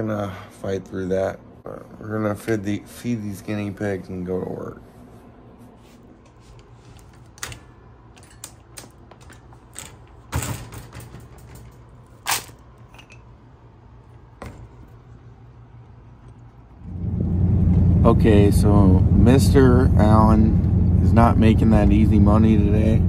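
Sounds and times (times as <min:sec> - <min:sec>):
faint low hum: 0:00.0 - 0:23.0
wire cage clicks and knocks: 0:07.0 - 0:13.2.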